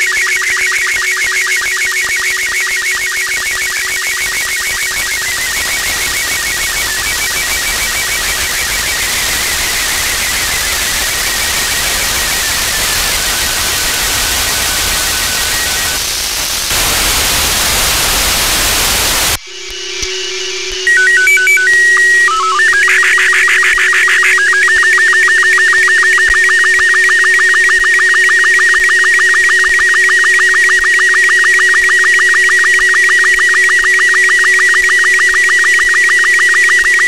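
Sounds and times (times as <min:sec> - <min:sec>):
faint wavering signal tones: 0:00.0 - 0:37.0
radio static hiss: 0:05.2 - 0:19.4.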